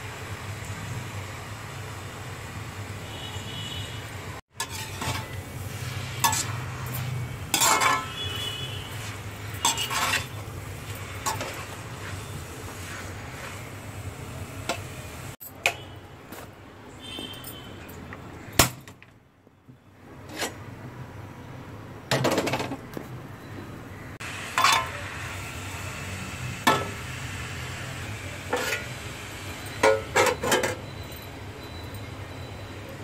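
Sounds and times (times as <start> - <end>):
metal spoon scraping iron pan: 4.6 - 5.4, 6.0 - 13.6, 24.6 - 25.0, 28.5 - 28.9, 29.8 - 30.8.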